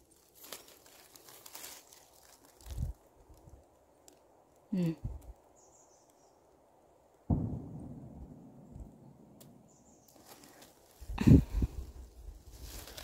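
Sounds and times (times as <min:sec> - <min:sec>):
rustling in leaf litter: 0:00.0 - 0:04.7, 0:10.0 - 0:13.0.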